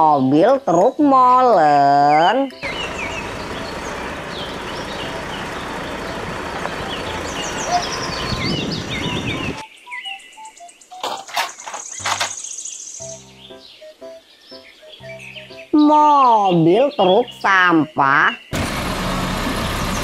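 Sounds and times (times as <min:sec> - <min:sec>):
birds chirping: 0:00.0 - 0:18.6
steady outdoor noise: 0:00.0 - 0:20.0
sharp clicks: 0:11.0 - 0:12.5.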